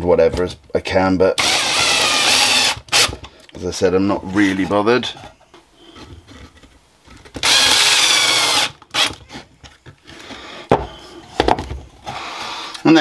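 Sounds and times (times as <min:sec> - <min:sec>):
power drill driving a screw: 0:01.4 - 0:03.2, 0:07.4 - 0:09.2
handling of a wooden board: 0:09.2 - 0:12.2.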